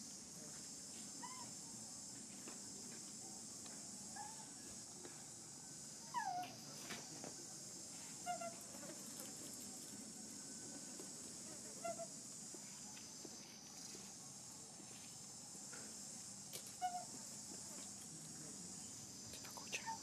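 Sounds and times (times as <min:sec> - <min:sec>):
insects droning: 0:00.0 - 0:20.0
short chirping animal calls: 0:16.8 - 0:17.1.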